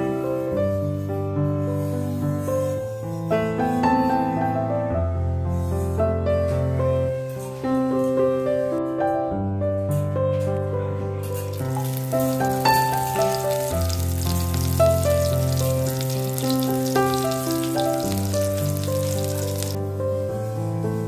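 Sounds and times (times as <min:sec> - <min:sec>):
soft piano music: 0:00.0 - 0:21.0
seeds sizzling in hot oil: 0:11.4 - 0:19.9.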